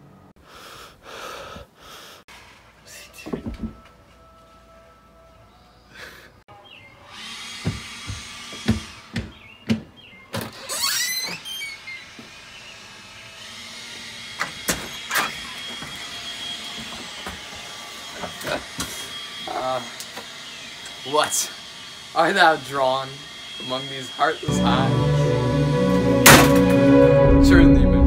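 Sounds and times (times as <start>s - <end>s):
squeaking door hinge: 10.3s - 12.2s, 14.4s - 15.6s.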